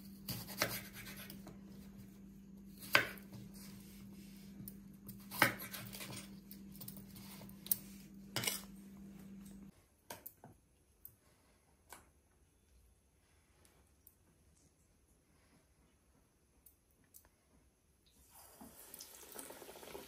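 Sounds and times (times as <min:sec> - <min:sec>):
low steady hum: 0:00.0 - 0:20.0
knife chopping on wooden board: 0:00.2 - 0:01.4, 0:02.8 - 0:03.5, 0:05.1 - 0:06.2.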